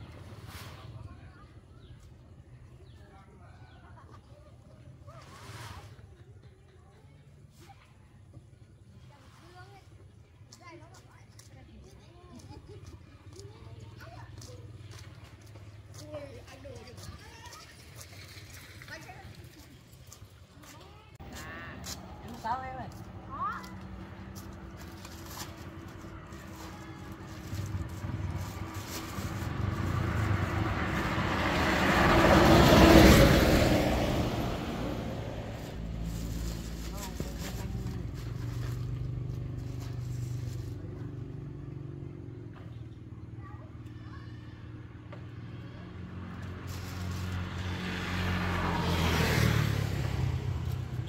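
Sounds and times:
vehicle passing on road: 13.7s - 51.0s.

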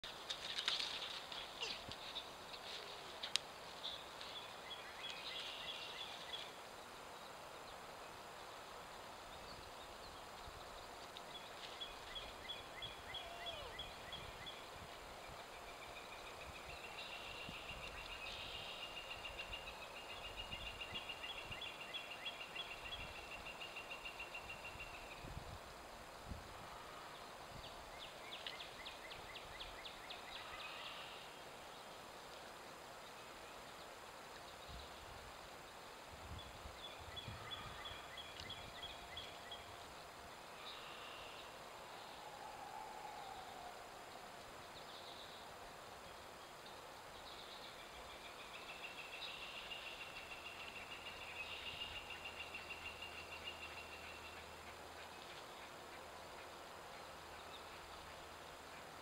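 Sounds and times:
outdoor hiss: 0.0s - 59.0s
distant bird calling: 11.5s - 14.7s, 40.5s - 45.4s.

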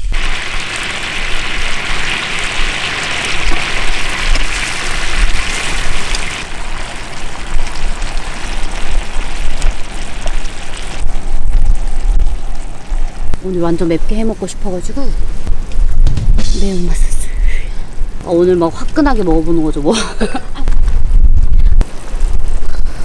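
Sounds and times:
ribs sizzling on a griddle: 0.0s - 11.6s
low rumble: 0.0s - 23.0s.

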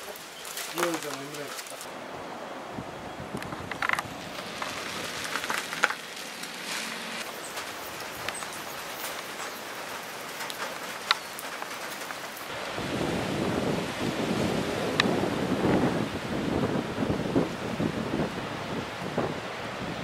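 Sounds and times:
wind and rain rushing hiss: 0.0s - 20.0s.

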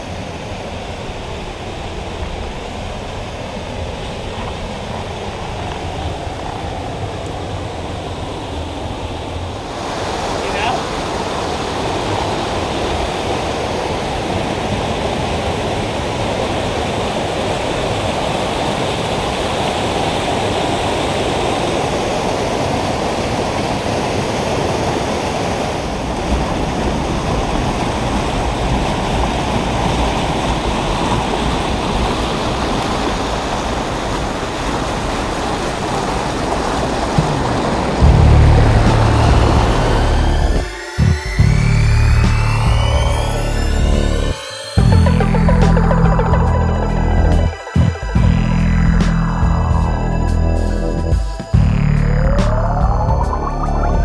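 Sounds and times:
stream rushing over rocks: 0.0s - 41.0s.

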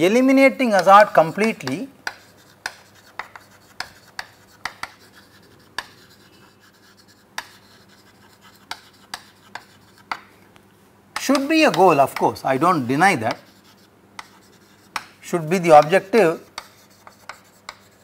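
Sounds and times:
faint chalk scraping: 0.4s - 10.3s, 11.2s - 18.0s
chalk tapping on chalkboard: 0.5s - 10.4s, 11.2s - 18.0s.

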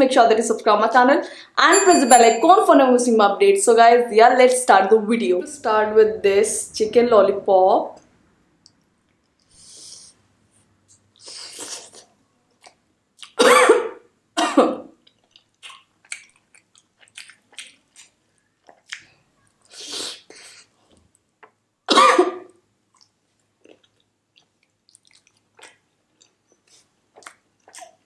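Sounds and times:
woman coughing: 13.4s - 14.9s, 21.9s - 22.5s
wet chewing clicks: 15.0s - 19.2s, 22.9s - 28.0s.

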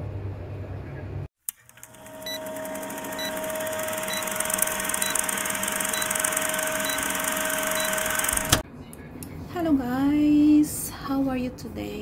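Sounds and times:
film projector whirring rattle: 1.5s - 8.6s.

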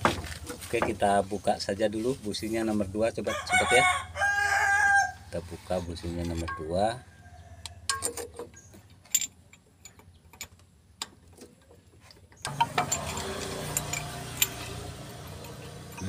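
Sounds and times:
ratchet wrench clicking: 12.5s - 16.0s.

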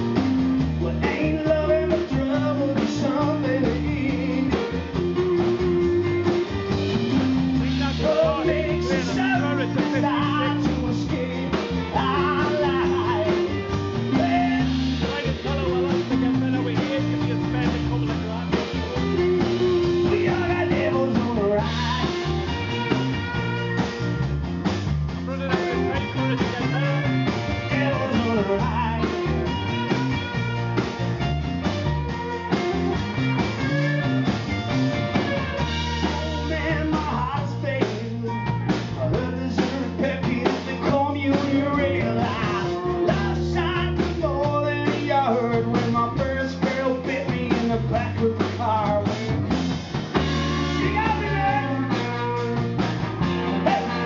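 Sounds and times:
man singing lead: 0.0s - 24.3s, 25.1s - 31.0s, 31.8s - 54.0s
drums: 0.0s - 54.0s
electric guitars: 0.0s - 54.0s.

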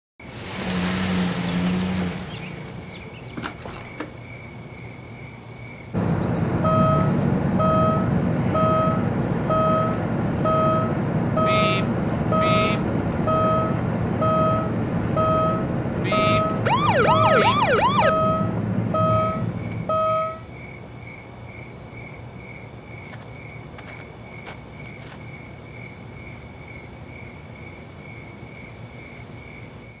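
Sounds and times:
loud low beeping: 6.6s - 20.4s
police siren yelp: 6.6s - 20.4s
seat belt warning chime: 6.7s - 16.9s, 18.1s - 20.4s.

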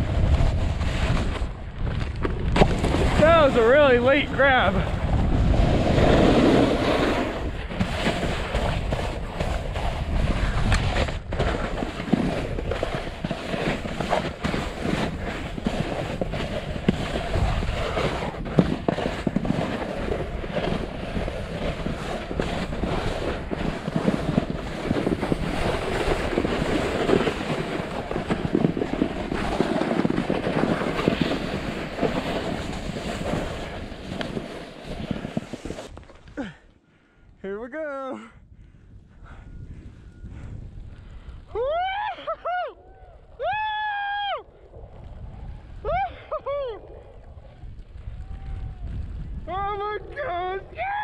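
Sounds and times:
snowboard edges scraping snow: 0.0s - 36.3s.

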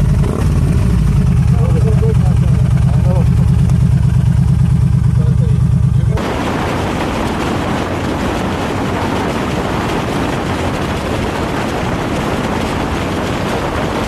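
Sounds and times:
motorcycle engine rumble: 0.0s - 14.0s
wind rushing over microphone: 6.1s - 14.0s.

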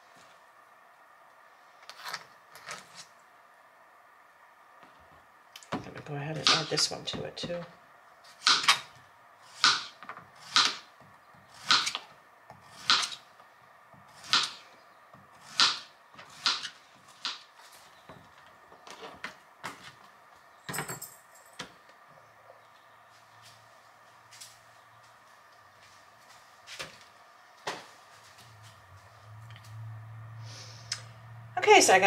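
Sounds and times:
knife cutting on plastic board: 11.5s - 13.2s.

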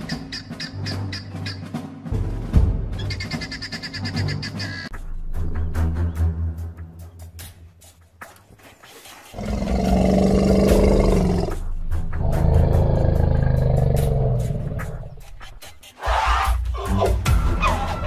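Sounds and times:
large animal roaring: 9.4s - 11.6s, 12.2s - 15.1s.

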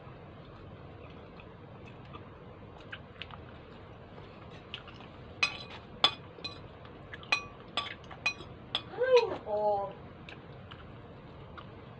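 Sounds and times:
faint chewing: 0.4s - 5.9s, 10.2s - 11.9s
fork clinking on plate: 5.4s - 6.6s, 7.2s - 8.9s.

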